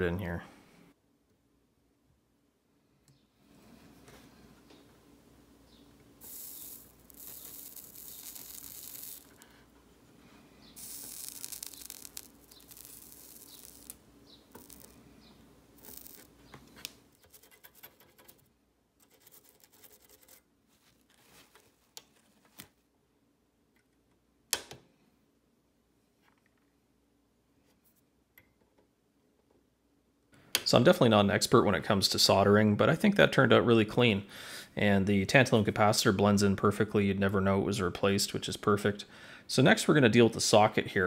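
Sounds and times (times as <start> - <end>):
solder sizzling on iron: 6.2 - 9.6, 10.6 - 16.5.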